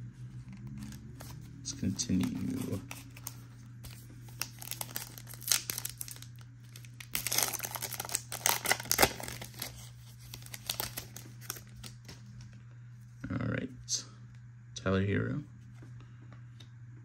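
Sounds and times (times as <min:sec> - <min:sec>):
steady low hum: 0:00.0 - 0:17.0
foil wrapper crinkling and tearing: 0:02.0 - 0:12.0.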